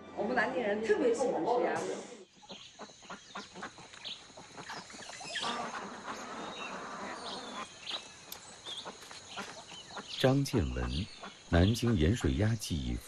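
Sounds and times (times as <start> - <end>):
ducks splashing in water: 2.8 - 7.7
duck calls: 5.3 - 7.7, 8.8 - 12.5.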